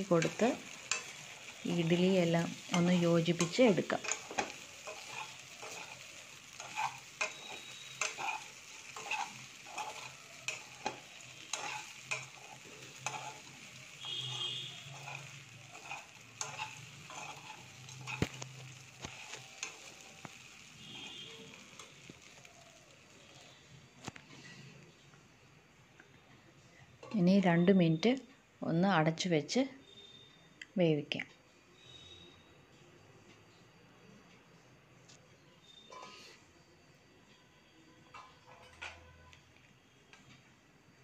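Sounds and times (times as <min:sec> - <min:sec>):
metal spoon scraping a metal pan: 0:00.0 - 0:20.0
frying sizzle: 0:00.0 - 0:24.9.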